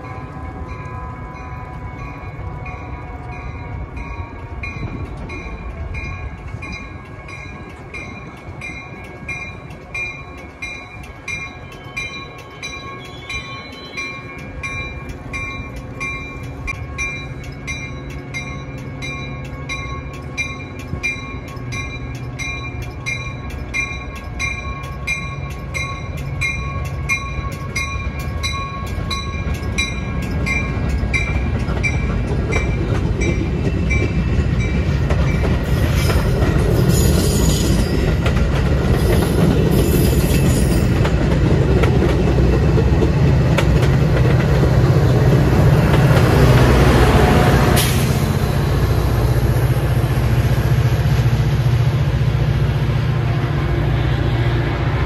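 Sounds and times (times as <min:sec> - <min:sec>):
train wheel squeal: 0:00.0 - 0:42.9, 0:45.1 - 0:51.7
railroad bell ringing: 0:00.0 - 0:53.3
train rumbling past: 0:00.0 - 0:55.0.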